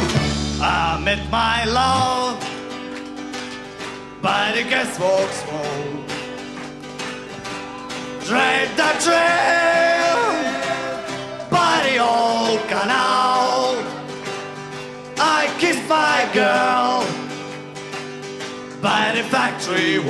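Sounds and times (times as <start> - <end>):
guitar and plucked strings: 0.0 - 20.0
person singing: 0.5 - 2.5, 4.2 - 6.2, 7.8 - 14.2, 15.2 - 17.3, 18.8 - 20.0.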